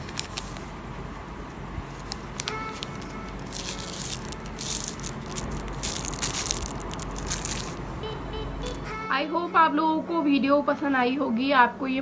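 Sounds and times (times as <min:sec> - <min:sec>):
plastic bag crinkling: 0:00.0 - 0:00.7, 0:01.9 - 0:07.8.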